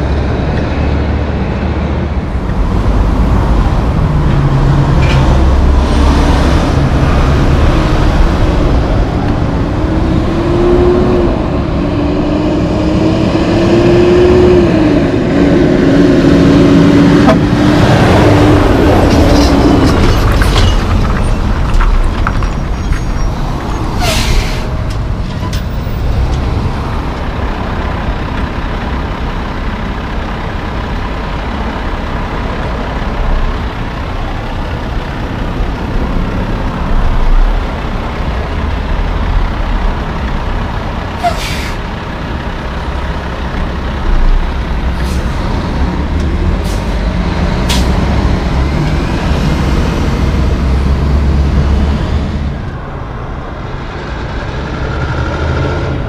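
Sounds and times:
trucks driving past: 0:00.0 - 0:56.0
air brakes hissing: 0:24.0 - 0:24.8, 0:41.2 - 0:41.8.

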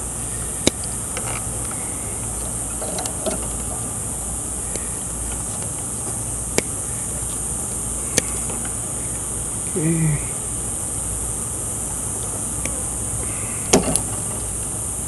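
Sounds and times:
steady high hiss: 0:00.0 - 0:15.0
faint ticks: 0:04.6 - 0:07.4, 0:08.0 - 0:08.8.

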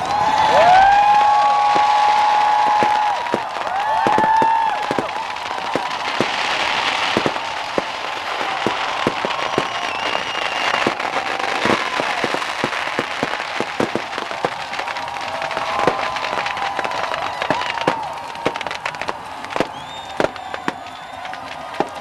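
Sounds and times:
fireworks pops and bangs: 0:00.0 - 0:22.0
dense crackle: 0:00.2 - 0:22.0
high whistles: 0:01.5 - 0:14.0, 0:19.5 - 0:22.0.

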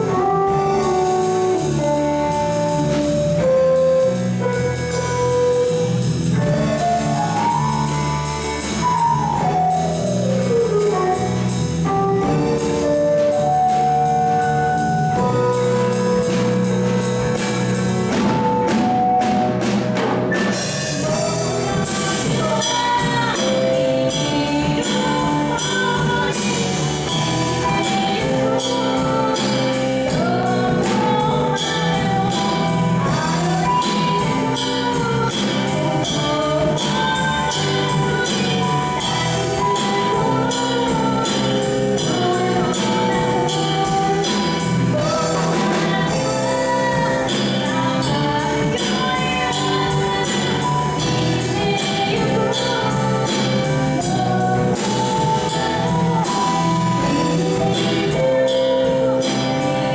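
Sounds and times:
drum kit beat: 0:00.0 - 0:59.9
electric bass: 0:00.0 - 0:59.9
keyboard: 0:00.0 - 0:59.9
woman singing: 0:20.6 - 0:59.9.

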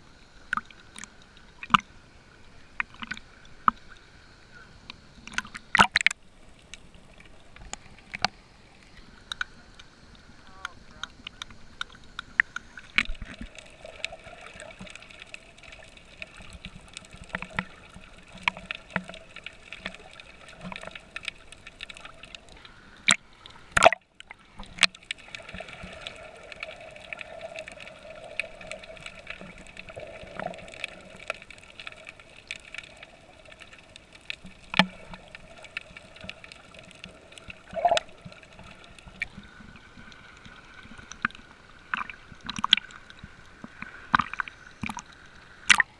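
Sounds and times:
faint steady hum: 0:00.0 - 0:45.9
water sloshing and gurgling: 0:00.0 - 0:45.9
knocks and splashes: 0:45.7 - 0:45.9.

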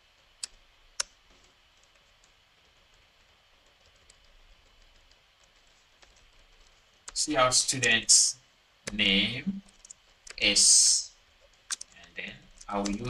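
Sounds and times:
keyboard keystrokes: 0:12.6 - 0:13.0.

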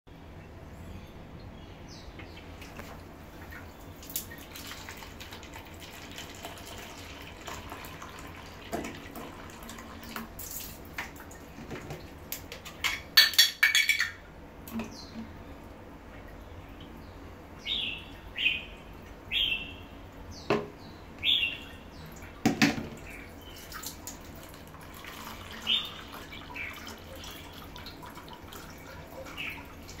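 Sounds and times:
water trickling into plastic cup: 0:02.6 - 0:12.2, 0:23.4 - 0:30.0.

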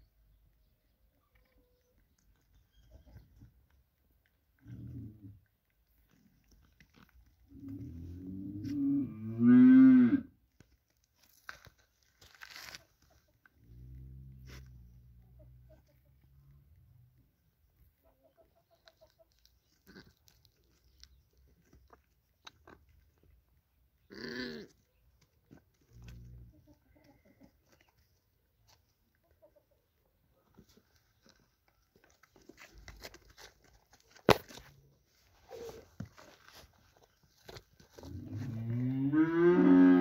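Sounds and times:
small clicks and rustles: 0:01.1 - 0:08.0, 0:30.5 - 0:38.4.

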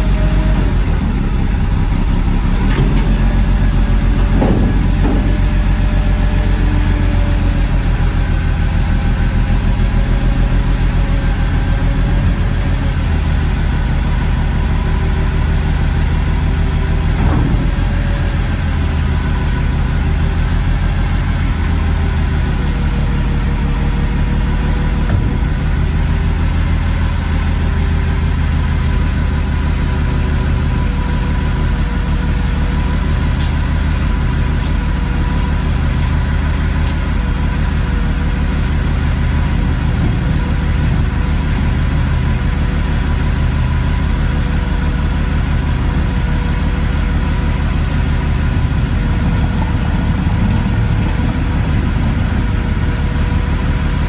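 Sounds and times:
truck engine idling: 0:00.0 - 0:54.0.

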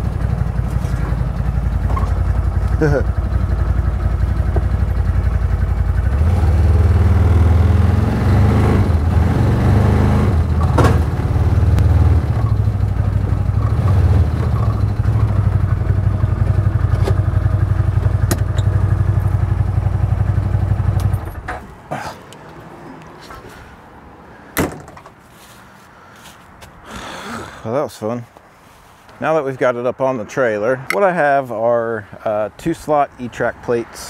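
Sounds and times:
vehicle engine running: 0:00.0 - 0:21.6
sharp knocks: 0:24.6 - 0:25.2.

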